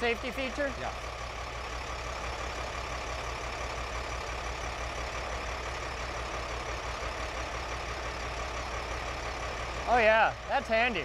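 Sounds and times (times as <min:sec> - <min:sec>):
truck engine humming: 0:00.0 - 0:11.0.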